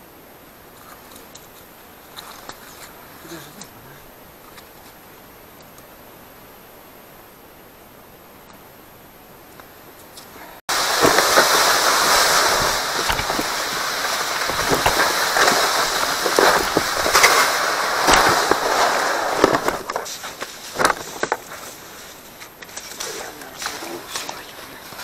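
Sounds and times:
steady rushing hiss: 0.0s - 25.0s
footsteps crunching on snow: 10.7s - 25.0s.

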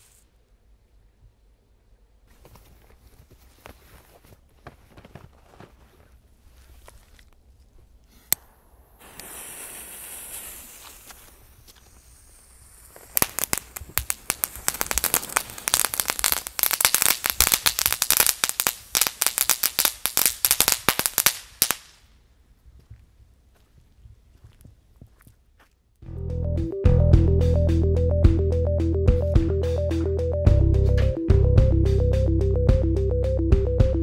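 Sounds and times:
firework crackling pops: 0.0s - 0.2s, 8.3s - 22.1s
firework hiss: 0.0s - 0.3s, 8.2s - 22.0s
firework click: 8.2s - 18.8s.

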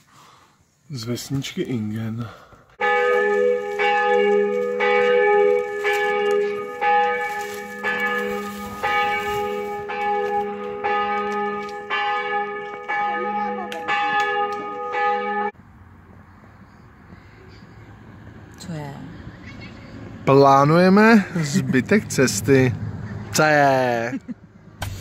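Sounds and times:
church bell tolling: 2.8s - 15.6s.

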